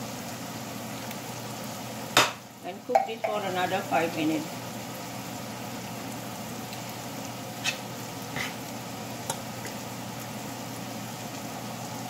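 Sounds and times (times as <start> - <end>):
gravy bubbling in a pan: 0.0 - 12.0.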